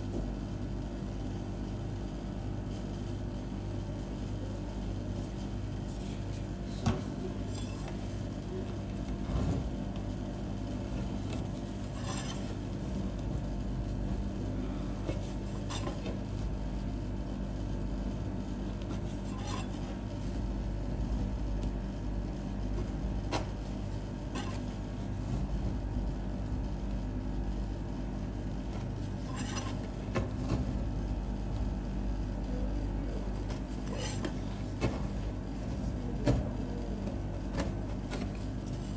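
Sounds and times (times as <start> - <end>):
low machine hum: 0.0 - 38.9
metal spatula scraping cold plate: 11.9 - 12.6, 19.2 - 19.8, 24.3 - 24.6, 29.2 - 29.8.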